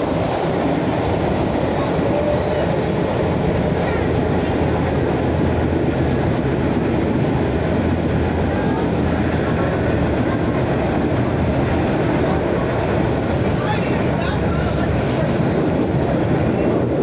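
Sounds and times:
train wheels on rails: 0.0 - 17.0.

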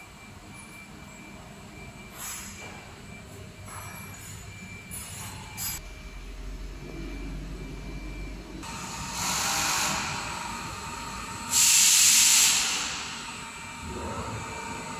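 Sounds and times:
low steady machine hum: 0.0 - 11.6.

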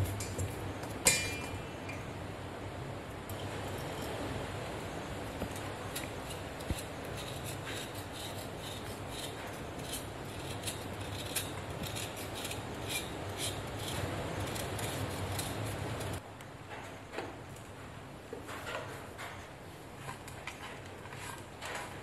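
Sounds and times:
steady low hum: 0.0 - 16.4
knife scraping jaggery: 5.6 - 16.2.

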